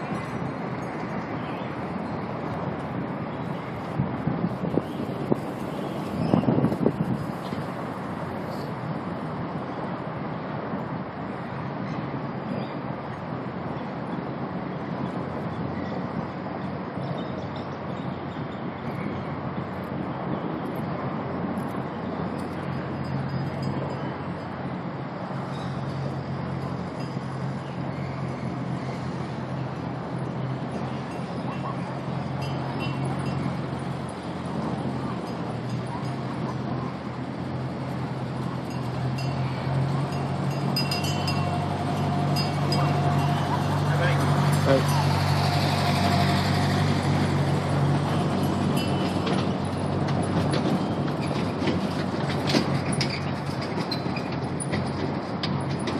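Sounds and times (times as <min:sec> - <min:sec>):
low engine hum: 0:00.0 - 0:55.9
outdoor noise: 0:00.0 - 0:55.9
road train rolling on paving: 0:00.0 - 0:55.9
light rattles and clicks: 0:40.8 - 0:55.9.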